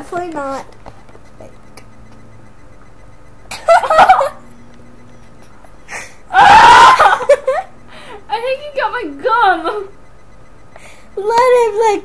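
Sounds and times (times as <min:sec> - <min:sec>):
girl laughing and squealing: 0:03.5 - 0:04.4, 0:05.9 - 0:07.7.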